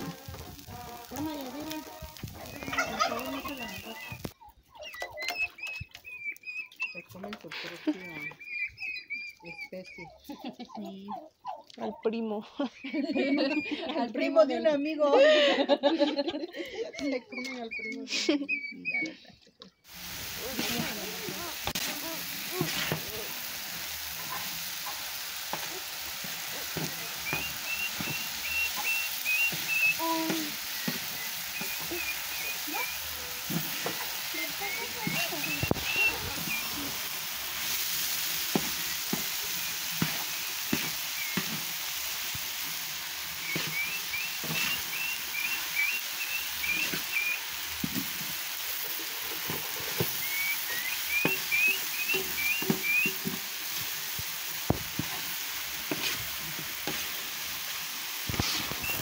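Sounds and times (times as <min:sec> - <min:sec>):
meat sizzling on a griddle: 0:00.0 - 0:04.4, 0:10.4 - 0:10.6, 0:12.8 - 0:16.4, 0:19.9 - 0:59.0
bird chirping: 0:02.5 - 0:15.0, 0:16.8 - 0:19.8, 0:27.2 - 0:36.9, 0:38.8 - 0:41.5, 0:43.4 - 0:47.4, 0:50.2 - 0:53.2.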